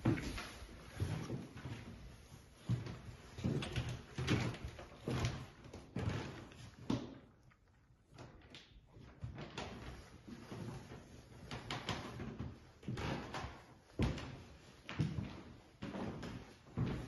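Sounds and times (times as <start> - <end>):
footsteps on wooden floor: 0.0 - 7.3, 9.2 - 17.0.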